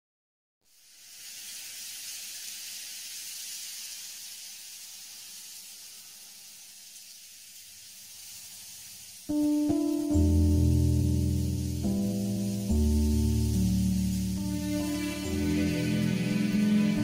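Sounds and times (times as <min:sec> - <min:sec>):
steady high hiss: 0:00.6 - 0:17.0.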